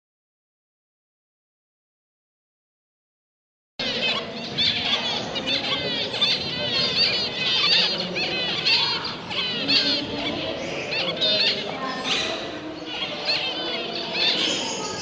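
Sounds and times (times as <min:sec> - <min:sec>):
small cage birds calling: 0:03.8 - 0:15.0.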